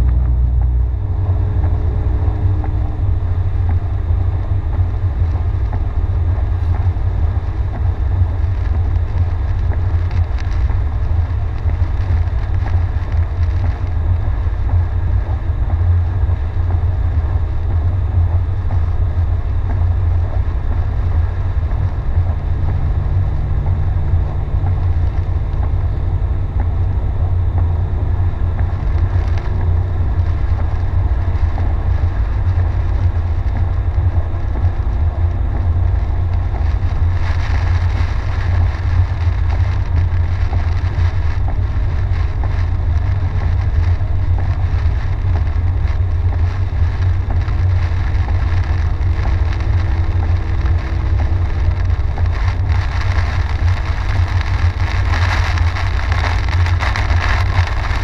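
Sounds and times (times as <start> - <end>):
car driving rumble: 0.0 - 58.0
rain: 0.0 - 58.0
tyres hissing on wet pavement: 34.7 - 58.0.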